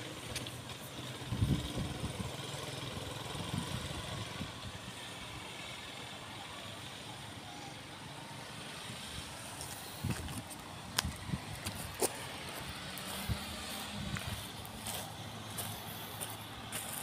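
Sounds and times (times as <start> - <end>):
small motorcycle engine running: 0.0 - 6.2
outdoor background noise: 0.0 - 17.0.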